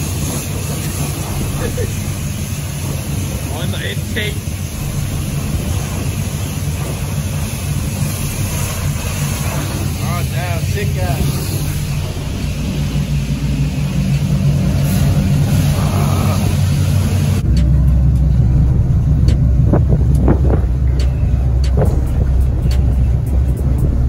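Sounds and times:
hiss: 0.0s - 17.4s
vehicle engine running: 0.0s - 24.0s.

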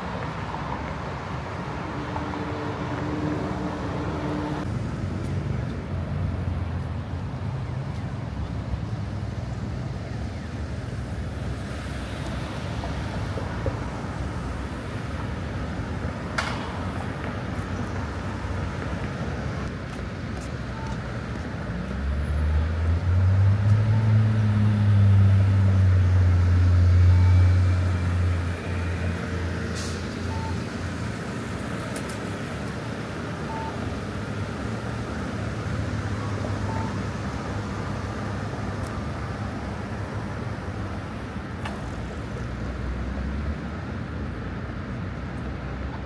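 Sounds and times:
city traffic hum: 0.0s - 46.0s
faint short beeps: 20.7s - 21.0s, 27.0s - 27.7s, 30.3s - 30.6s, 33.5s - 33.8s, 36.6s - 37.0s.

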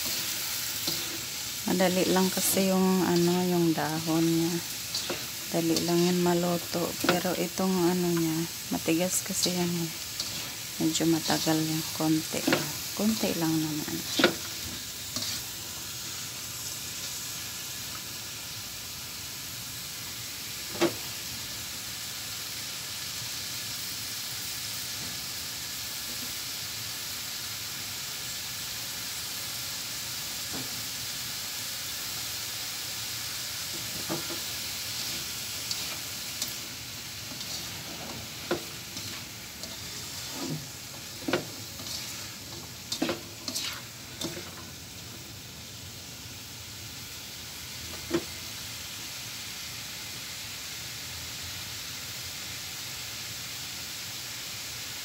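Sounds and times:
vegetables sizzling in a pan: 0.0s - 55.0s
spatula scraping and tapping pan: 4.9s - 6.2s, 10.2s - 10.6s, 12.4s - 12.8s, 14.0s - 15.5s, 33.7s - 36.6s, 37.3s - 44.7s.

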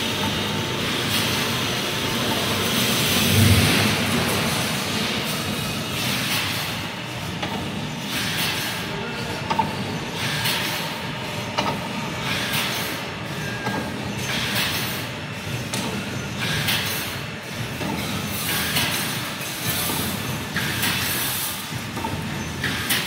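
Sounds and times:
machinery running: 0.9s - 7.6s.

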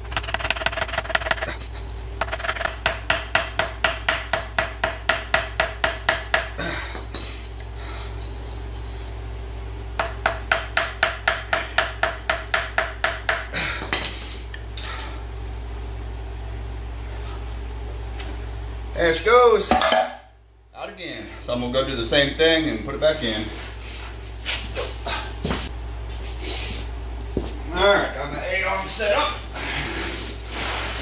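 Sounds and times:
hammer ringing metal blows: 19.7s - 20.4s.

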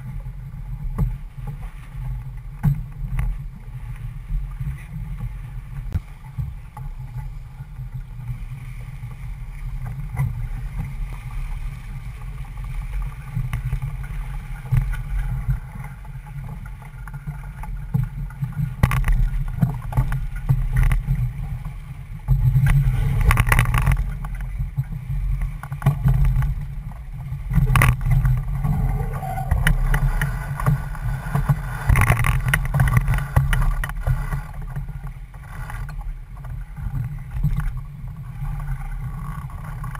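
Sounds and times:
wind buffeting microphone: 26.3s - 35.3s.

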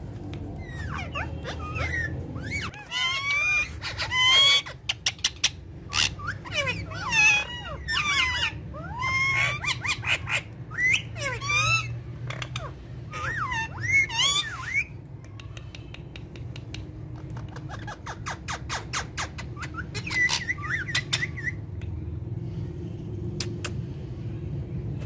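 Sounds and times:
parakeets squawking: 0.4s - 15.0s, 17.0s - 21.8s
sharp clicks: 15.3s - 17.0s.

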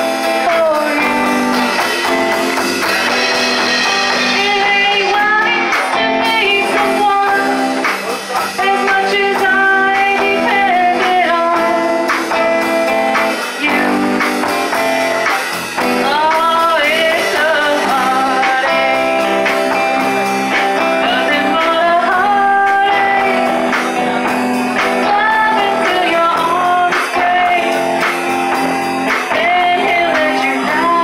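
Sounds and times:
woman singing: 0.0s - 2.4s, 4.1s - 7.9s, 8.5s - 14.8s, 15.8s - 31.0s
guitar accompaniment: 0.0s - 31.0s.

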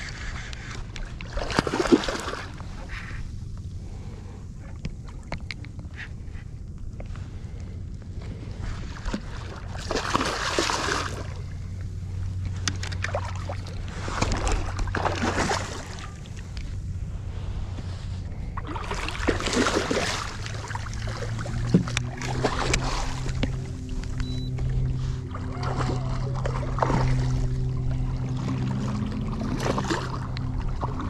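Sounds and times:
steady low hum: 0.0s - 31.0s
fish splashing at water surface: 1.3s - 2.6s, 8.8s - 11.4s, 12.8s - 16.2s, 18.6s - 23.7s.

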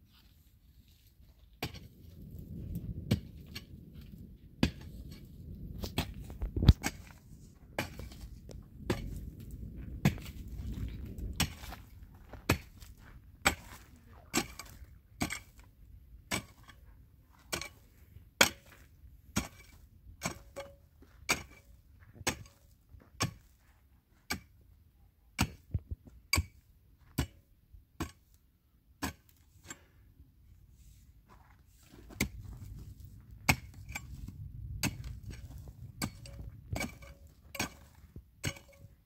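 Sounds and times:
pickaxe striking stony ground: 1.6s - 2.0s, 3.1s - 3.7s, 4.6s - 5.2s, 5.8s - 7.2s, 7.8s - 9.3s, 10.0s - 15.7s, 16.3s - 23.6s, 24.2s - 24.6s, 25.4s - 28.4s, 29.0s - 29.9s, 31.8s - 39.0s.

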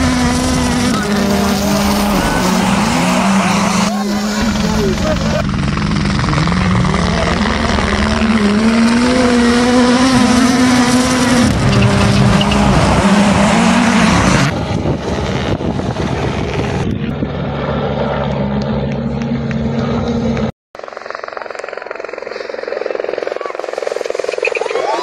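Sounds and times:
rally car engine revving: 0.0s - 17.2s
dull engine drone: 0.0s - 25.0s.

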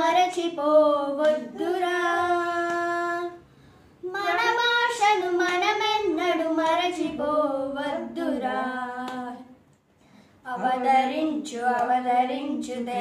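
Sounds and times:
girl singing unaccompanied: 0.0s - 3.4s, 4.0s - 9.6s, 10.5s - 13.0s
breath: 3.4s - 4.0s, 9.9s - 10.4s.

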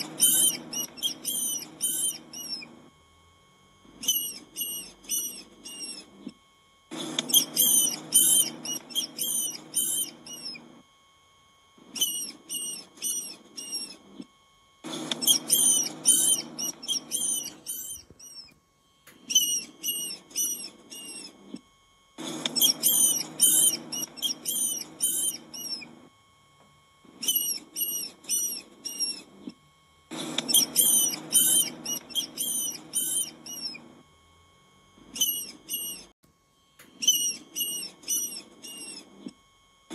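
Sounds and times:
small rodent squeaking: 0.0s - 2.8s, 4.0s - 6.3s, 6.9s - 10.7s, 11.8s - 14.3s, 14.9s - 18.6s, 19.2s - 21.6s, 22.2s - 26.0s, 27.1s - 29.3s, 30.1s - 33.9s, 35.1s - 36.1s, 36.9s - 39.3s.

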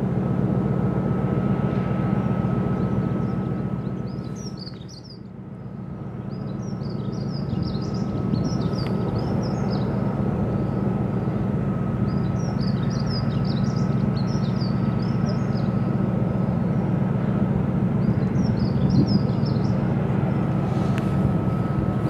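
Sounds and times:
ship engine drone: 0.0s - 22.0s
small birds chirping: 2.8s - 5.3s, 6.2s - 10.0s, 10.6s - 17.3s, 18.0s - 19.9s.

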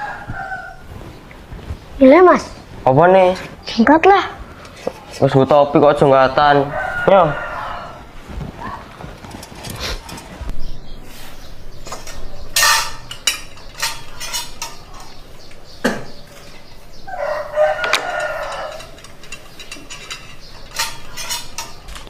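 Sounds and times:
rooster crowing: 0.0s - 0.9s, 6.4s - 8.2s, 17.1s - 19.1s
sharp clicks and knocks: 17.8s - 22.0s.

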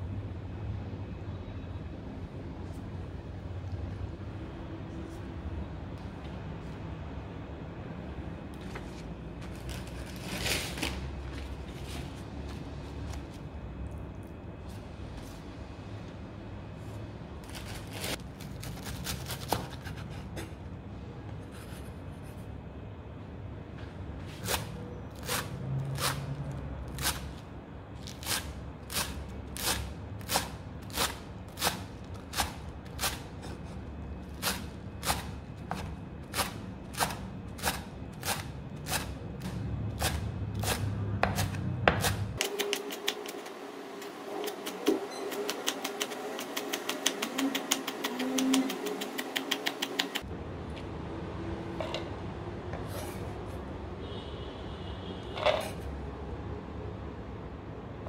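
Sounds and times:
knife chopping on wooden board: 44.4s - 50.2s.

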